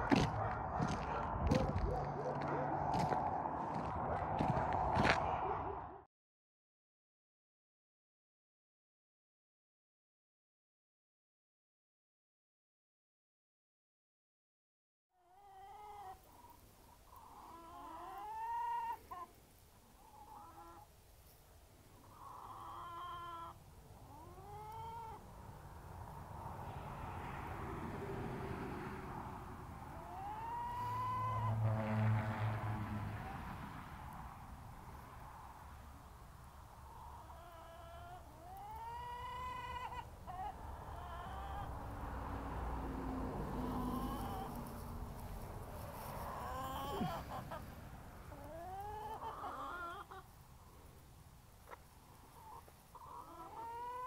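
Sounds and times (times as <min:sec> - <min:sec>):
low rumble: 0:00.0 - 0:06.0
drawn-out animal calls: 0:29.9 - 0:33.5, 0:42.8 - 0:45.0, 0:46.1 - 0:47.7.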